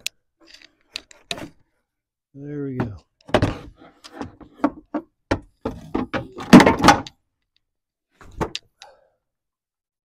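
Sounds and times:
knocks and clunks of tools: 2.8s - 7.2s.

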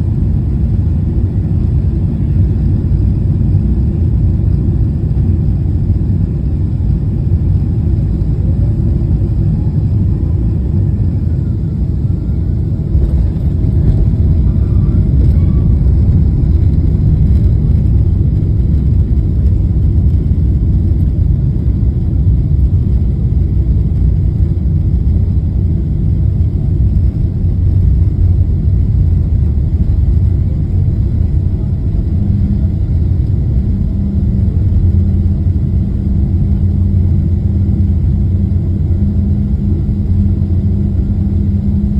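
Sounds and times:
jet engines in reverse thrust: 0.0s - 41.9s
wheels rumbling on runway: 0.0s - 41.9s.

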